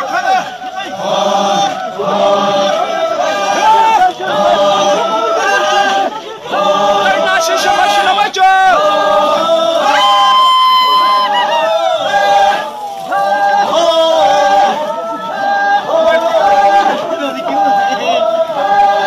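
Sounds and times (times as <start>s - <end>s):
men chanting: 0.0s - 19.0s.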